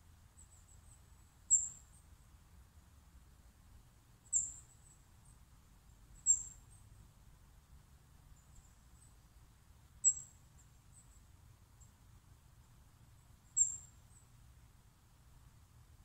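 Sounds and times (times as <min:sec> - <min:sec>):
small bird chirping: 0:00.3 - 0:02.4, 0:04.2 - 0:07.0, 0:08.3 - 0:09.4, 0:10.0 - 0:12.0, 0:13.1 - 0:14.4
bird twittering: 0:01.5 - 0:01.8, 0:04.3 - 0:04.6, 0:06.2 - 0:06.6, 0:10.0 - 0:10.4, 0:13.5 - 0:14.0.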